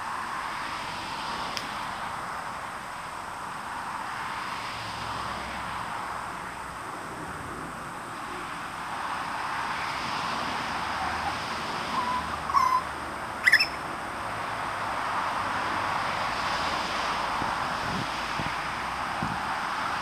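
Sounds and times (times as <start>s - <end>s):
birds calling: 11.0s - 13.8s.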